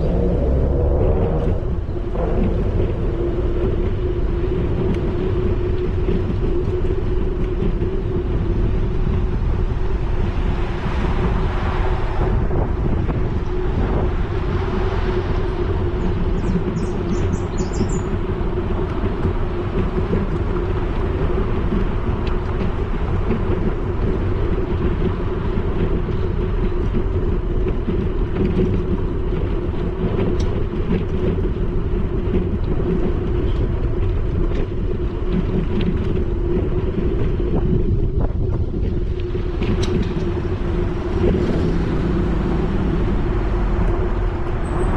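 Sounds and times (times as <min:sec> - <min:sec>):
low hum: 0:00.0 - 0:27.7
tyres rumbling on pavement: 0:00.0 - 0:44.9
wind on microphone: 0:00.0 - 0:44.9.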